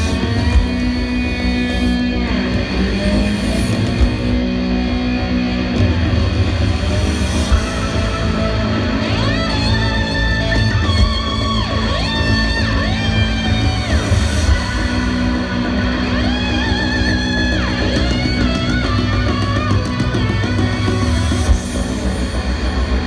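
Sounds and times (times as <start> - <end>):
electric slide guitar sweeps: 0.0 - 23.0
live rock band: 0.0 - 23.0
sustained bass: 0.0 - 23.0.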